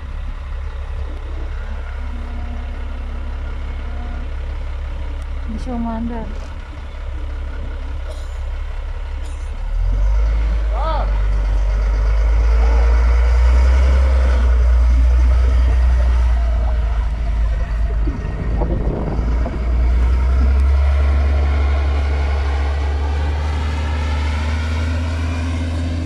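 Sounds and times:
heavy engine droning: 0.0 - 26.0.

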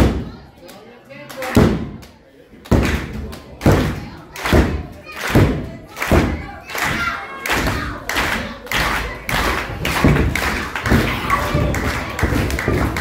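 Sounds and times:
crowd clapping and stomping: 2.6 - 13.0.

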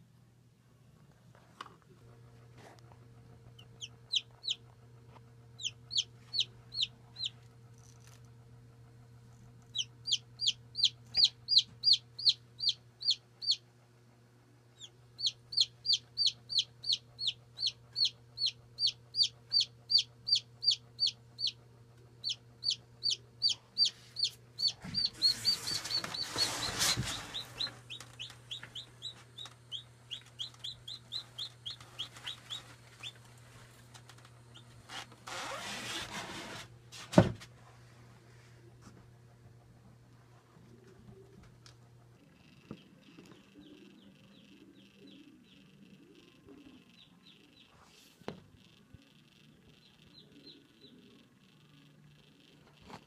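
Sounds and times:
steady low hum: 0.0 - 35.5
chick peeping: 3.6 - 4.6, 5.6 - 7.4, 9.7 - 13.6, 14.8 - 21.6, 22.2 - 33.3, 34.2 - 34.7, 42.3 - 47.8.

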